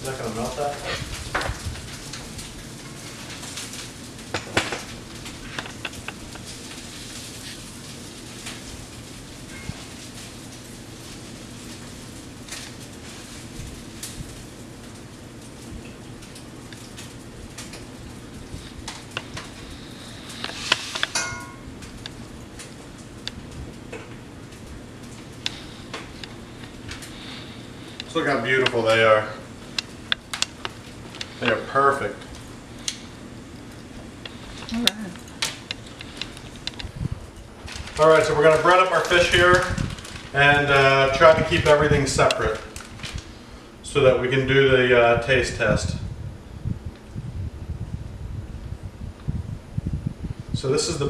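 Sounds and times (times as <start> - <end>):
frying oil crackling and popping: 0.0 - 51.0
kitchenware clattering: 21.1 - 21.7
utensils clinking on cookware: 21.1 - 21.7.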